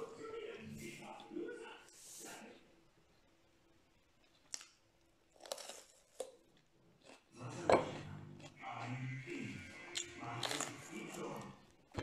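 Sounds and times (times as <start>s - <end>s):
crisp crunches of chewing pepper: 4.2s - 6.4s.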